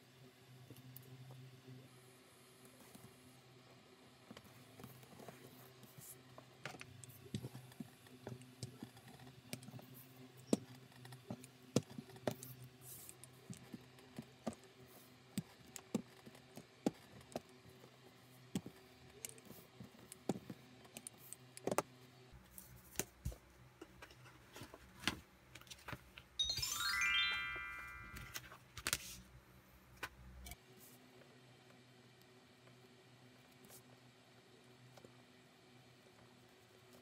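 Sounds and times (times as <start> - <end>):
short chime of music: 26.4 - 28.4.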